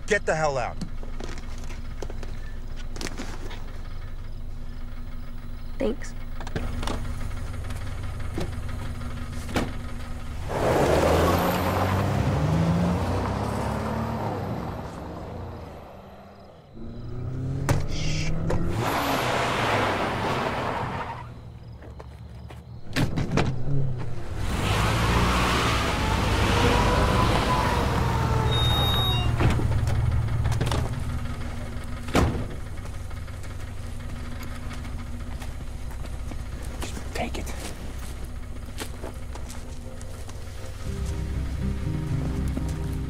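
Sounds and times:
car engine idling: 0.0s - 18.6s, 26.8s - 43.0s
car passing: 10.3s - 21.8s.

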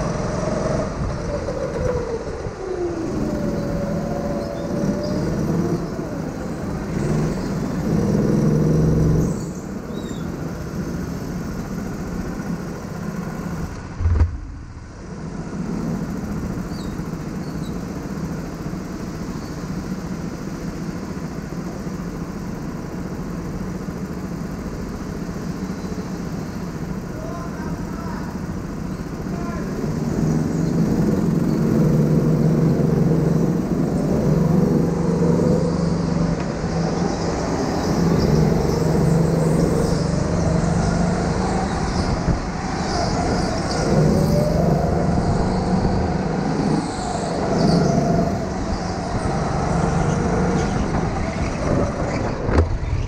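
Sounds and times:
go-kart motor: 0.0s - 53.0s
sharp knock: 14.0s - 14.6s.

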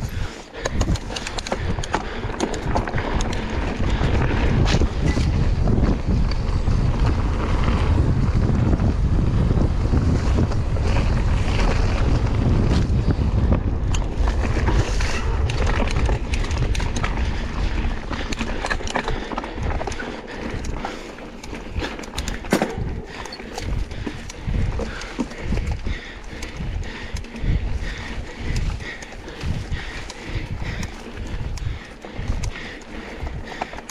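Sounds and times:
bike clicks and rattles: 0.0s - 33.9s
wind buffeting microphone: 0.0s - 33.9s
tyre rumble on trail: 0.1s - 33.9s.

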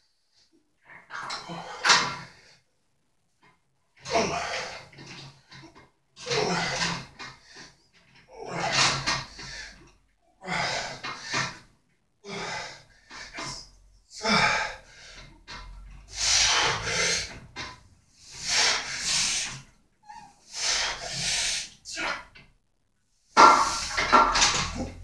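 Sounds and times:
man grunting: 4.1s - 4.7s, 6.2s - 7.0s
man breathing heavily: 8.4s - 15.4s, 16.0s - 17.4s, 18.1s - 19.7s, 20.4s - 22.1s.

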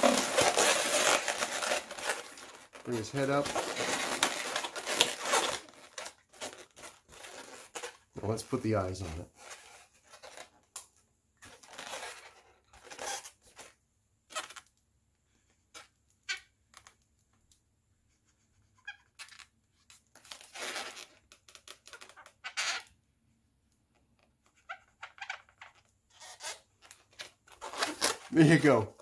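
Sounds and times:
balloons squeaking and rubbing: 0.0s - 10.5s, 11.5s - 14.7s, 18.4s - 19.5s, 20.1s - 23.0s, 24.4s - 29.0s.

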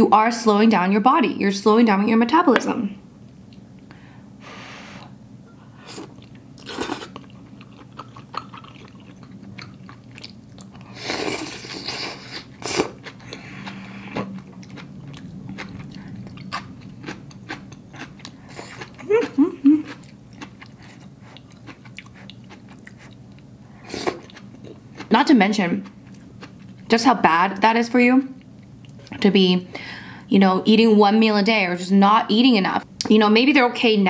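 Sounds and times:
low steady hum: 0.0s - 34.0s
person chewing: 5.7s - 25.1s, 25.8s - 26.9s.

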